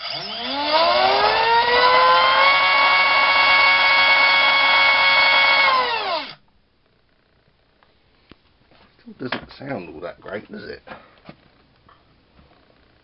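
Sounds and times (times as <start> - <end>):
electric motor and propeller whine: 0.0 - 6.4.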